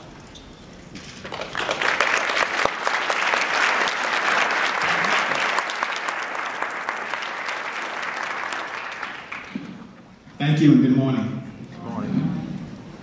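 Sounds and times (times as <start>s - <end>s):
crowd applauding: 1.2s - 9.9s.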